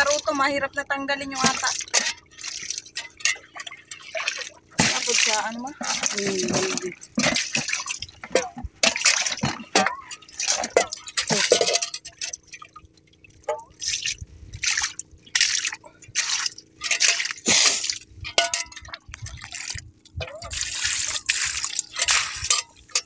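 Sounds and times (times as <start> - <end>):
water splashing and dripping: 1.3 - 23.0.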